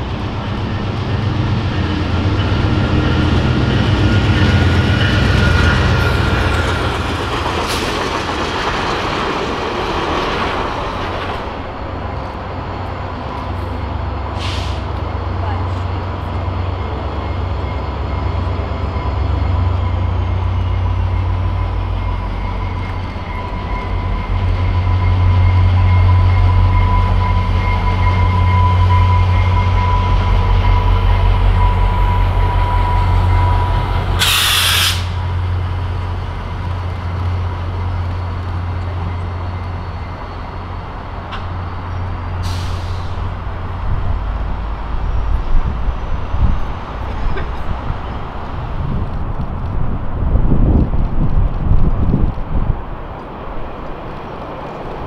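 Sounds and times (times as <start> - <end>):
diesel train passing: 0.0 - 55.0
loud air hiss: 14.4 - 14.9, 34.2 - 35.3, 42.4 - 43.3.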